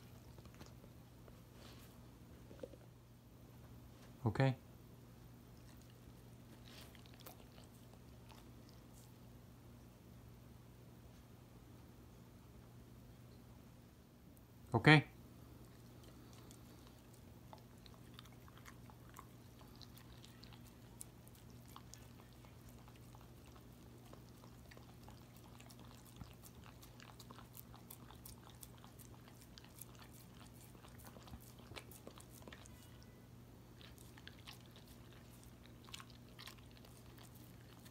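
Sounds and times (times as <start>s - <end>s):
dog chewing and licking: 0.0s - 1.8s, 5.4s - 9.3s, 15.4s - 37.9s
faint low hum: 0.0s - 37.9s.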